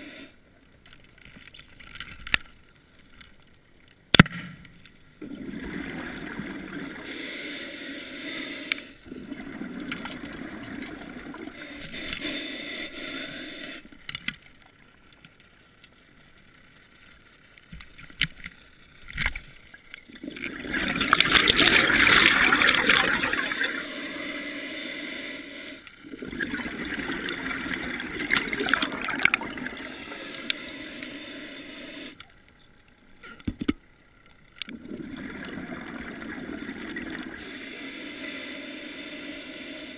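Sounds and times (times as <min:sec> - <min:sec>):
underwater bubbling and rushing: 0:05.2 - 0:13.9, 0:19.0 - 0:32.2, 0:34.6 - 0:39.9.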